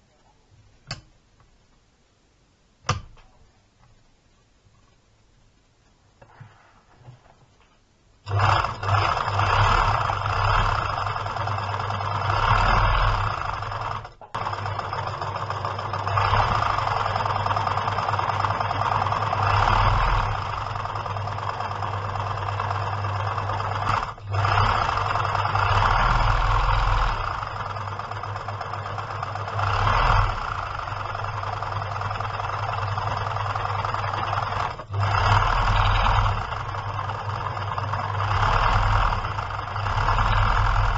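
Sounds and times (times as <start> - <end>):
electric sewing machine running: 8.3 - 40.9.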